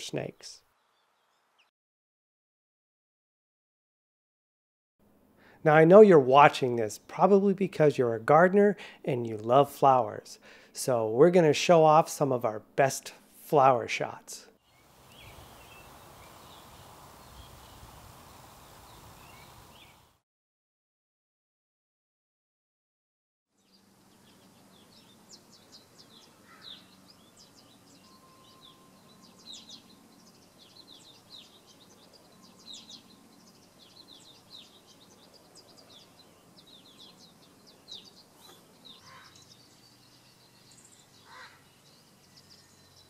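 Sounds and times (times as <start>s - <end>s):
small birds chirping: 14.6s - 20.2s, 23.6s - 43.0s.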